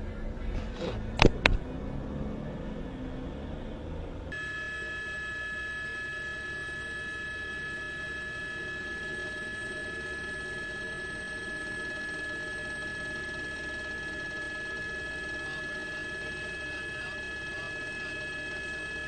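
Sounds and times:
vehicle and traffic rumble: 0.0 - 4.4
steady high whine: 0.0 - 19.0.

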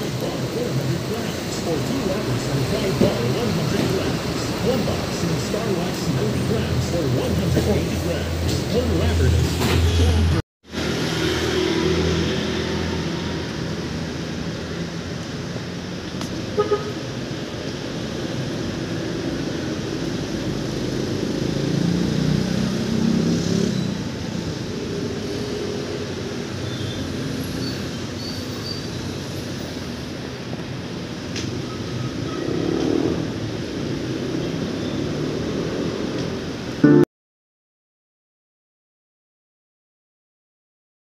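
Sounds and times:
street traffic noise: 0.0 - 37.0
vehicle horn toot: 16.6 - 17.0.

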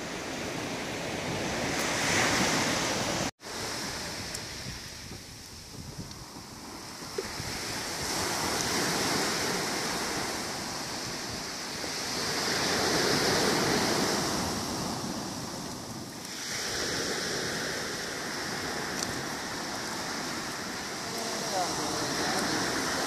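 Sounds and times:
waves breaking on shore: 0.0 - 23.0.

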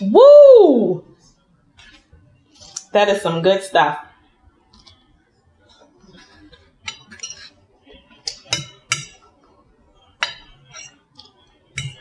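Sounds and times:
fork clinking against plate: 6.0 - 9.3, 10.2 - 12.0.

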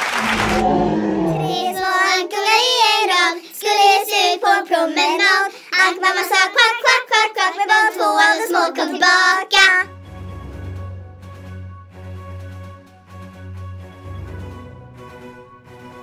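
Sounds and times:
child singing: 1.2 - 9.9
instrumental background music: 9.9 - 16.0.

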